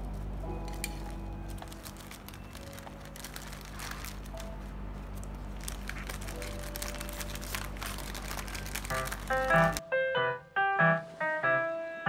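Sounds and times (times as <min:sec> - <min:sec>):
low hum: 0:00.0 - 0:09.8
faint background music: 0:00.0 - 0:12.0
plastic packets crinkling: 0:00.6 - 0:09.8.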